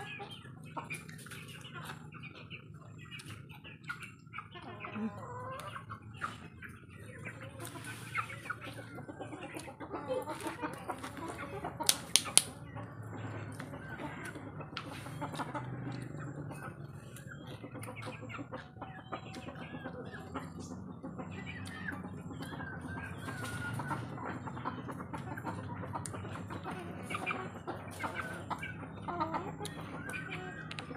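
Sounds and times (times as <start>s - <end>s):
chickens clucking: 0.0s - 30.9s
sharp clicks: 11.8s - 12.5s.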